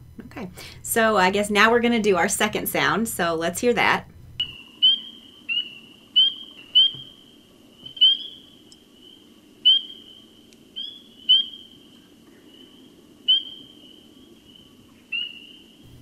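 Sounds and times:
faint background peeping: 0.0 - 16.0
frogs peeping: 4.4 - 15.8.

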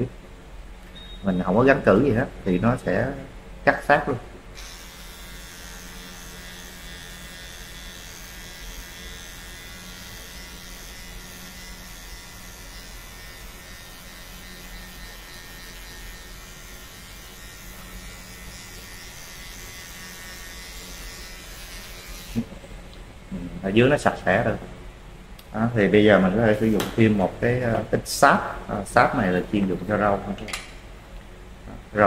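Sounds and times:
electric hair clipper buzzing: 4.6 - 22.5.

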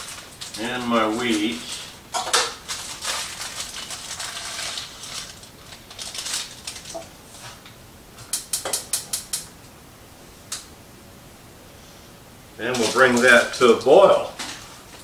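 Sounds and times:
grain pouring into pot: 0.0 - 7.0, 12.6 - 14.3.

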